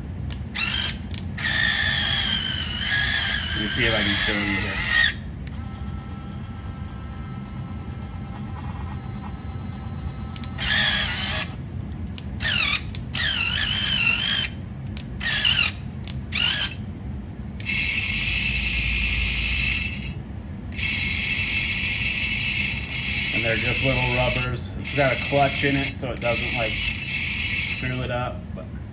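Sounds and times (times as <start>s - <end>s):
small electric motors whining: 0.5s - 11.6s, 12.4s - 14.6s, 15.2s - 16.8s, 17.6s - 28.2s.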